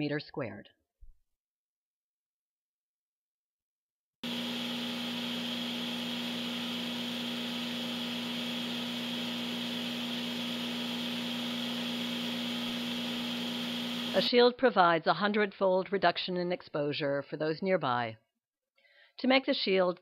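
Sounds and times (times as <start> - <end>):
microwave oven humming: 4.2 - 14.2.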